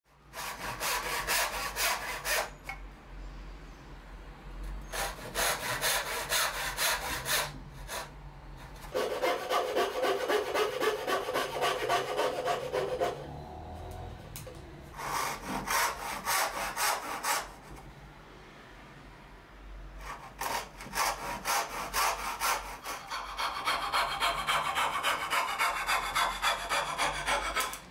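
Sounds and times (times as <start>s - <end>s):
hand saw cutting hardwood: 0.3s - 2.6s, 4.9s - 8.1s, 8.8s - 13.2s, 15.0s - 17.5s, 20.0s - 27.9s.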